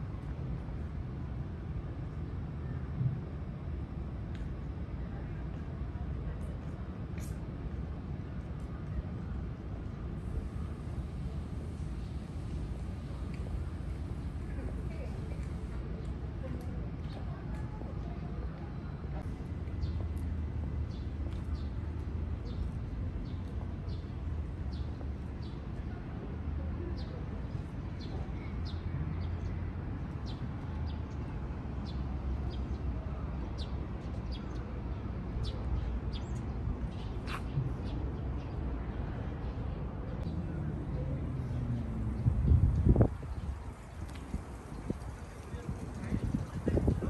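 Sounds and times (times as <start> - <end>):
faint distant voices: 4.5 - 47.0
steady low rumble: 38.7 - 47.0.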